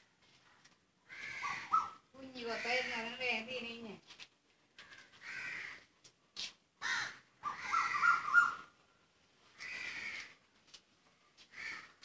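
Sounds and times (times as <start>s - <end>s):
crows cawing: 1.0s - 3.2s, 4.8s - 5.9s, 6.8s - 8.7s, 9.6s - 10.4s, 11.4s - 12.0s.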